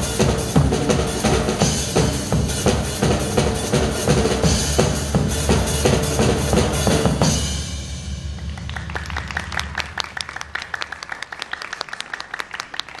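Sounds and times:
drum kit: 0.0 - 10.4
crowd applause: 8.3 - 13.0.

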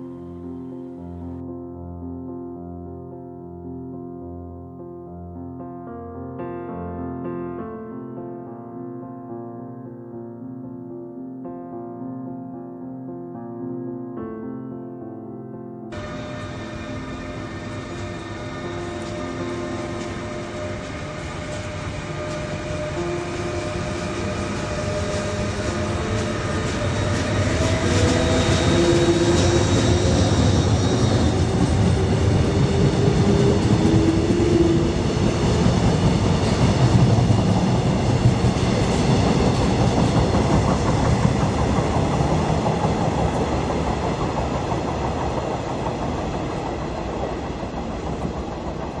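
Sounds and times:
train wheels rumbling on track: 16.0 - 49.0
whine of held tones: 16.0 - 49.0.

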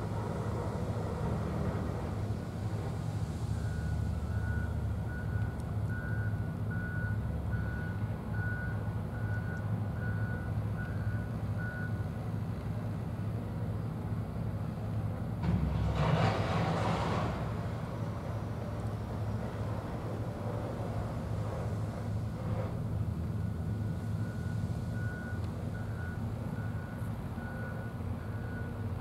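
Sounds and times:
low engine rumble: 0.0 - 29.0
reversing alarm beeping: 3.6 - 12.0, 23.4 - 28.9.

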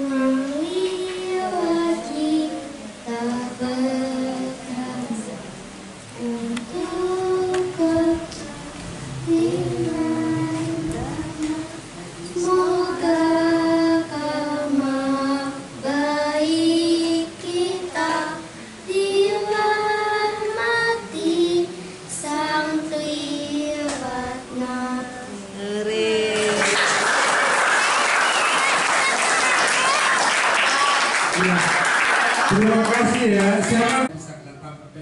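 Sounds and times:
girl singing slow song: 0.0 - 26.7.

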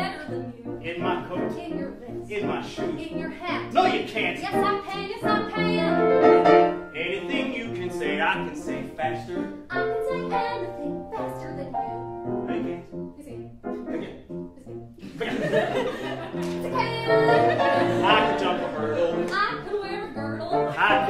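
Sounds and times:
piano accompaniment: 0.0 - 21.0
man and woman singing duet: 17.1 - 19.5.

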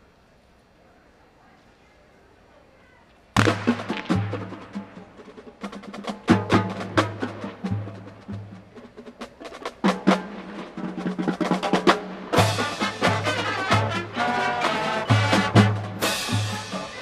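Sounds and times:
snare and stick hits: 3.4 - 4.6
low drum notes: 3.4 - 17.0.

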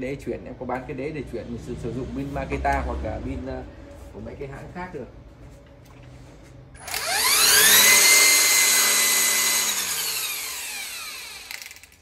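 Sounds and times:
string trimmer motor whining: 6.8 - 12.0.

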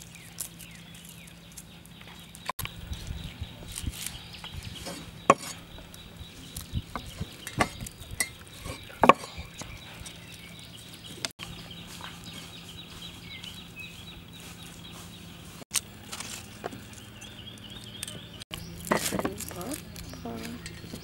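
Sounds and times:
cleaver chopping on wooden block: 5.3 - 5.6.

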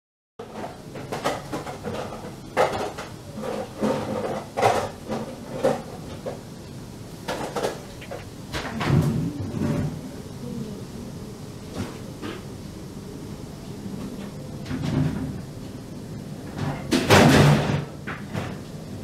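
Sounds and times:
plastic containers and utensils knocking: 0.4 - 6.4, 7.3 - 9.9, 16.5 - 18.6.

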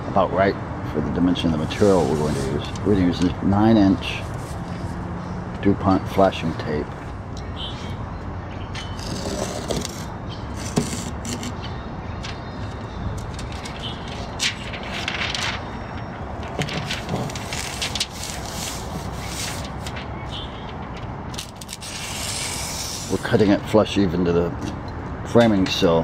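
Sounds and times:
stiff sheet crackling: 13.2 - 23.4
utility knife slicing wrap: 21.4 - 23.2.

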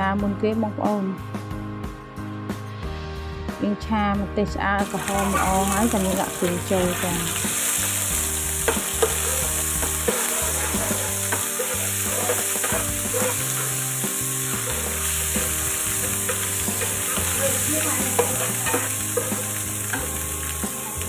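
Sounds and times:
food sizzling in a wok: 4.8 - 21.0
spatula scraping a pan: 4.8 - 21.0.

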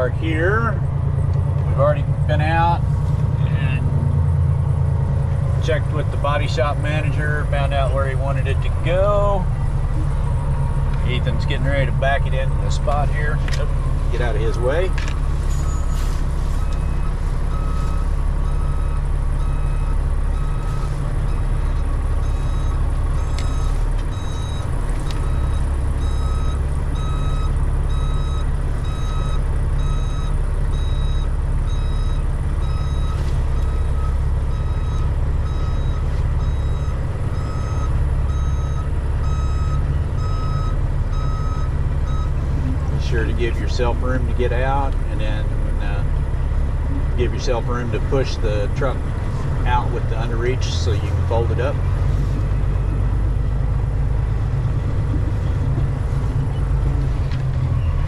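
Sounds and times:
diesel engine rumbling: 0.0 - 58.0
truck reverse alarm beeping: 5.6 - 46.2.

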